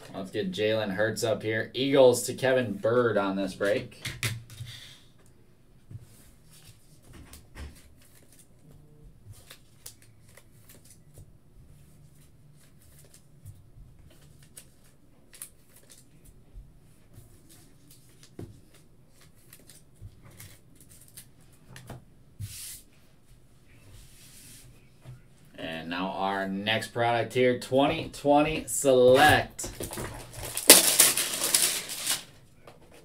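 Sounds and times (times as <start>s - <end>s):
cards rustling: 7.7s - 13.4s, 14.0s - 16.4s, 17.2s - 22.8s, 27.9s - 33.0s.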